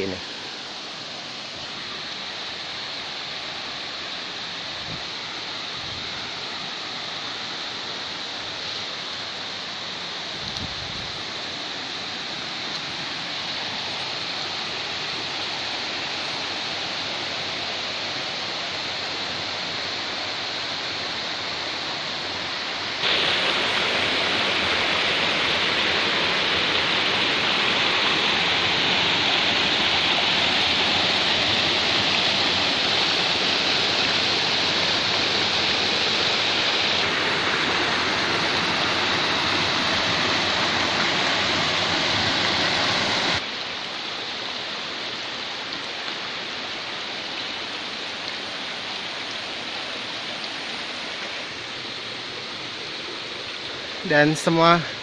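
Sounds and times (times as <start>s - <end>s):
stream rushing over boulders: 0.0s - 55.0s.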